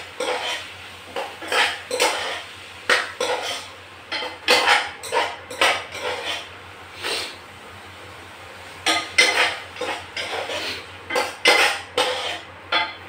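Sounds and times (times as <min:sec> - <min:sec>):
onions frying in oil: 0:00.0 - 0:13.0
spoon scraping metal saucepan: 0:01.4 - 0:02.4, 0:03.2 - 0:06.5, 0:09.0 - 0:13.0.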